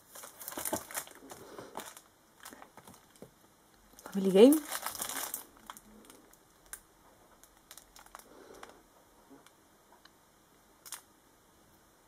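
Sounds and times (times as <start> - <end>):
plastic sleeve crinkling: 0.0 - 3.3, 3.9 - 8.8.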